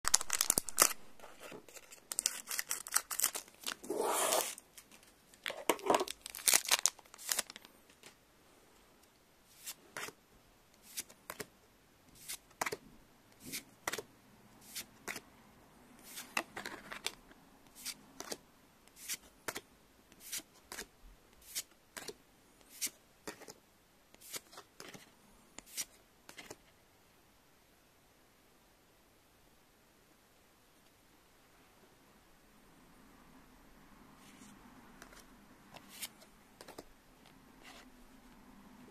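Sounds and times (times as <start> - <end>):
cards rustling: 0.1 - 8.2.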